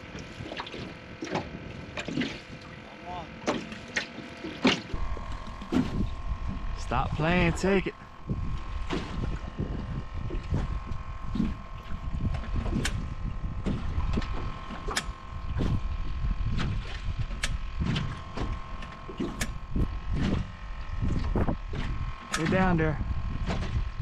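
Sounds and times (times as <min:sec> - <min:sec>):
trolling motor whine: 0:00.0 - 0:24.0
waves knocking against boat hull: 0:03.4 - 0:22.8, 0:23.4 - 0:24.0
wind on microphone: 0:04.9 - 0:24.0.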